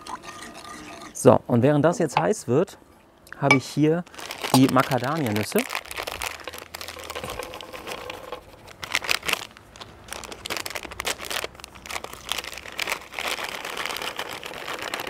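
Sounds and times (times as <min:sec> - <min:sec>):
bag crinkling: 0:03.6 - 0:15.0.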